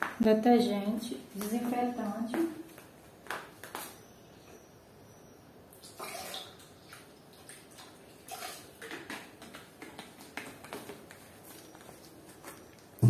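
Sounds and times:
liquid pouring into plastic bucket: 5.8 - 9.3.

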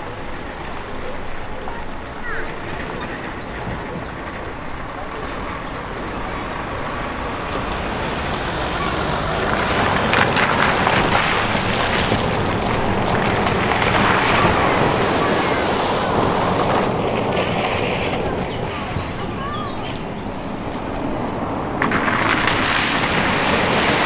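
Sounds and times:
tyres splashing through water: 0.0 - 24.0.

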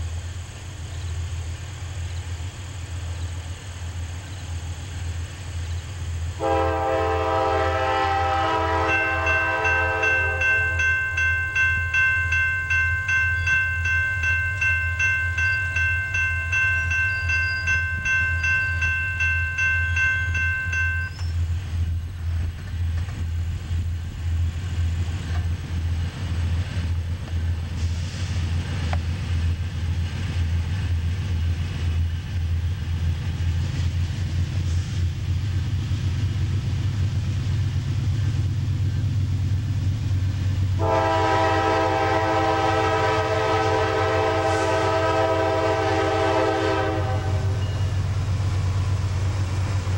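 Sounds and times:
diesel train rumble: 0.0 - 49.9
railroad crossing bell ringing: 6.4 - 21.7, 40.8 - 49.9.

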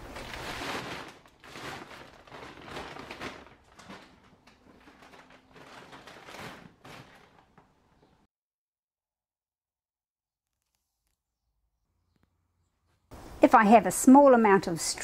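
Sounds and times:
plastic feed bag rustling: 0.0 - 8.2.

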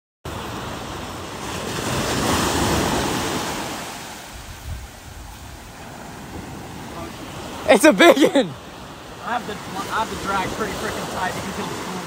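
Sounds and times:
ocean surf breaking on beach: 0.3 - 12.0
wind buffeting microphone: 4.2 - 7.7.

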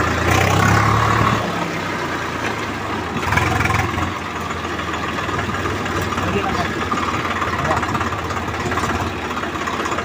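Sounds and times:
tractor diesel engine running: 0.0 - 10.0.

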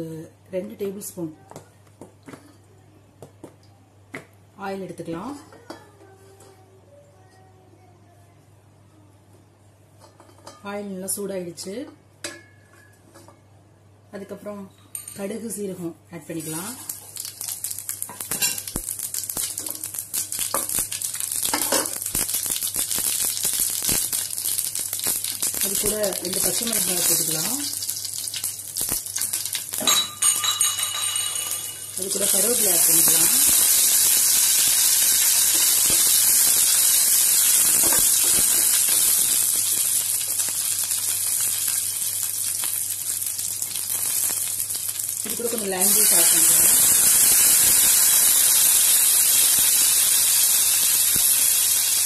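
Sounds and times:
seeds sizzling in hot oil: 16.4 - 30.6, 31.7 - 52.0
seeds popping in oil: 16.8 - 30.5, 32.0 - 52.0.

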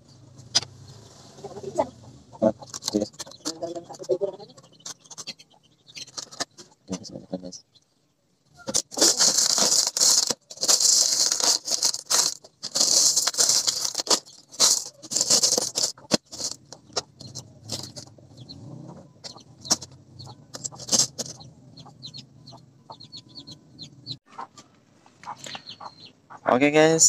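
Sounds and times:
pebbles rattling in plastic tray: 8.7 - 16.6.

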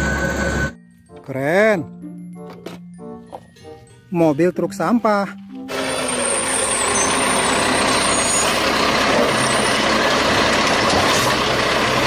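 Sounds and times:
garbage truck engine: 0.0 - 0.8, 5.6 - 12.0.

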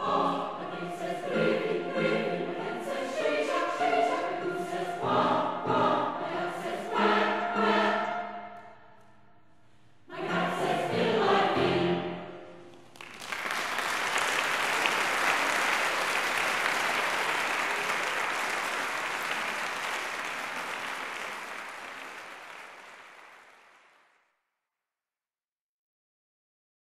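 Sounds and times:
mixed choir singing: 0.0 - 8.8, 10.0 - 12.5
audience applause: 12.9 - 24.1.

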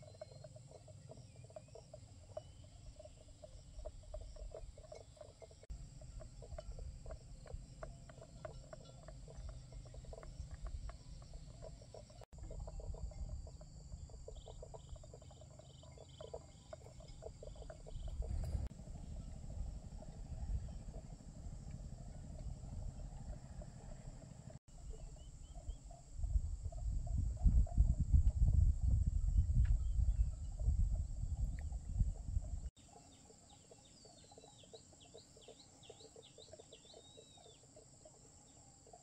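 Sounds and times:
frogs and insects chorus: 0.0 - 39.0
wind rumble on microphone: 5.7 - 15.4, 16.8 - 32.7.

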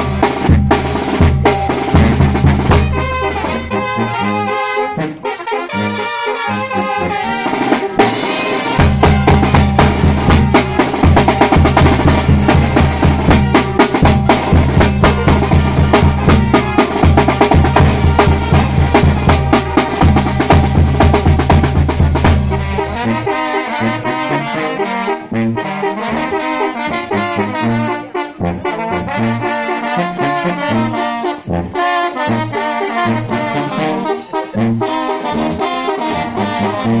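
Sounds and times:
heavy drum roll: 0.0 - 4.2, 7.4 - 23.4
brass band playing: 0.0 - 37.0.

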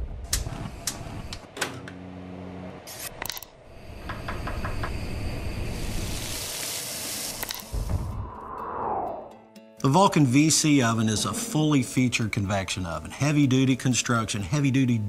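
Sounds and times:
food sizzling in a pan: 5.4 - 7.9
low hum: 7.7 - 9.4.

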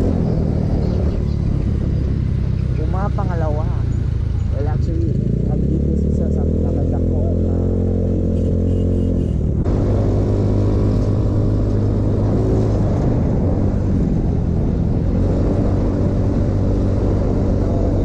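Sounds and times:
wind noise on microphone: 10.7 - 18.0.

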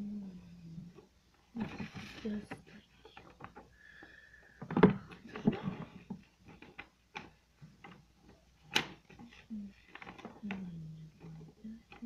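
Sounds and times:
paper rustling: 1.5 - 3.6, 4.8 - 10.6.

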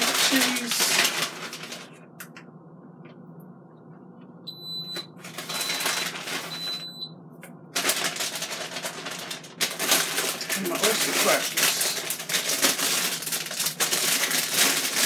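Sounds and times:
loud rustling: 7.8 - 15.0.

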